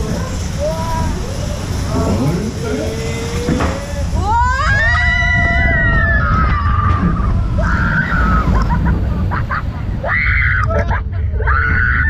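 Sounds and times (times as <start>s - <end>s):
low rumble of ride: 0.0s - 12.0s.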